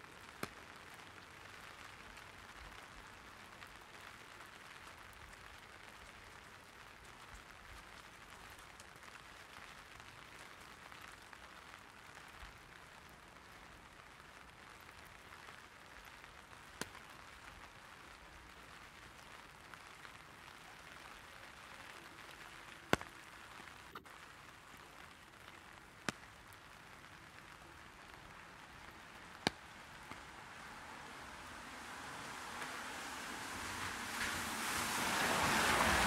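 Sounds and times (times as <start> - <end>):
drops tapping on an umbrella: 0.0 - 12.4, 16.6 - 17.4, 21.8 - 30.4
light rain on an umbrella: 0.0 - 36.0.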